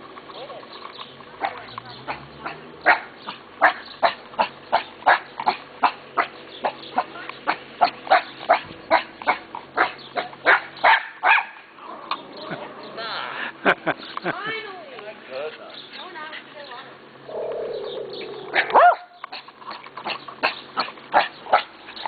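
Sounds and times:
dog barking: 0:01.4 - 0:11.6, 0:18.5 - 0:19.4, 0:20.4 - 0:21.8.

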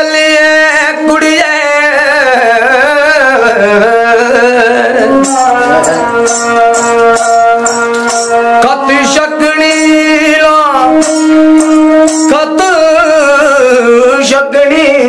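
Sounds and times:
man singing folk melody: 0:00.0 - 0:07.8, 0:08.4 - 0:15.0
bowed string instrument: 0:00.7 - 0:15.0
bells jingling on bow: 0:05.2 - 0:08.6.

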